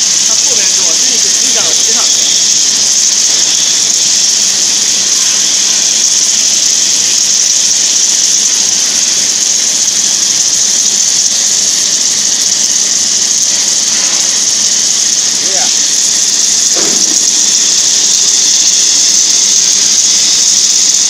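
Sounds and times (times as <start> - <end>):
cutting torch hissing: 0.0 - 21.0.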